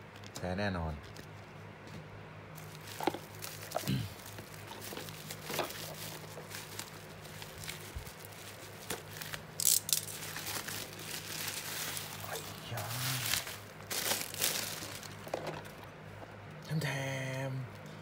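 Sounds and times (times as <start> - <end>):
low steady hum: 0.0 - 18.0
bubble wrap rustling and crinkling: 2.5 - 15.9.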